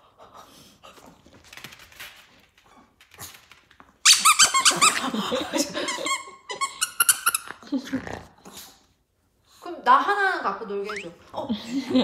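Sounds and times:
squeaky dog toy squeaking: 4.0 - 5.0, 6.0 - 7.6, 10.8 - 11.2.

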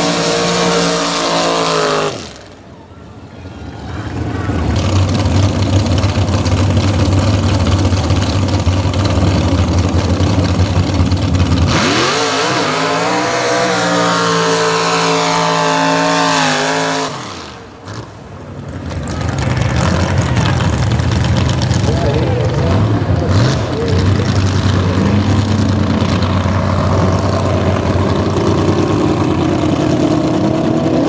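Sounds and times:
truck engine revving: 0.0 - 2.6, 4.2 - 31.0
tyres spinning on dirt: 4.1 - 12.0, 17.8 - 31.0.

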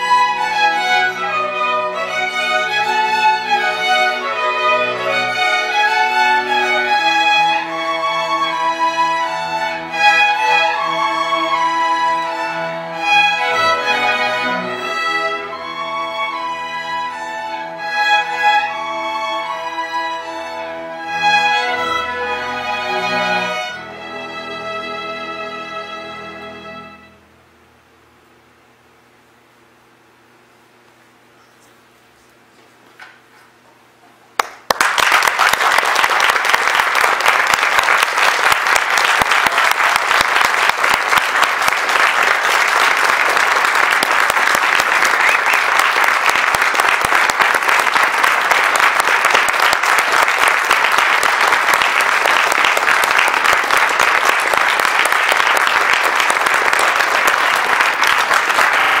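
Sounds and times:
audience applauding: 34.4 - 59.0.

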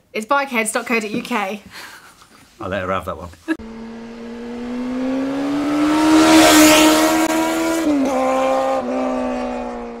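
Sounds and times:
high-revving engine sound effect: 3.6 - 10.0.

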